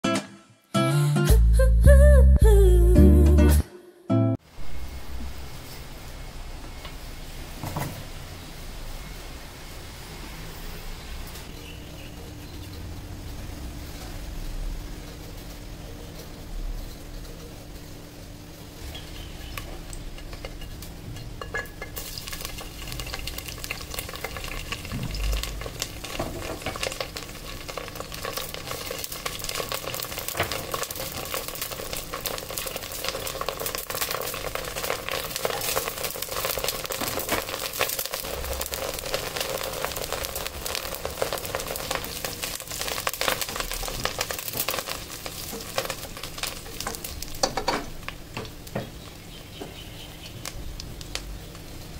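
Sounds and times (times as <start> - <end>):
leaves frying in hot oil: 4.4 - 51.9
spatula stirring: 28.2 - 47.1.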